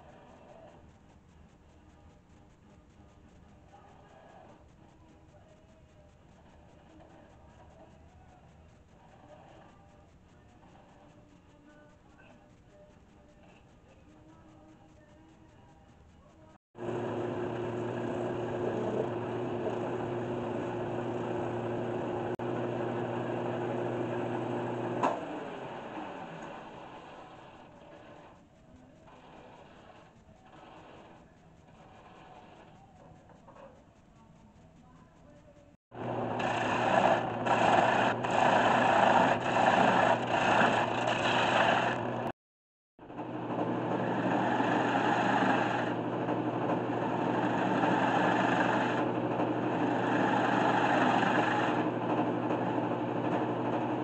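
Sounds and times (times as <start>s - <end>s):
wood lathe motor hum: 16.8s - 28.3s, 36.0s - 42.3s, 43.1s - 54.0s.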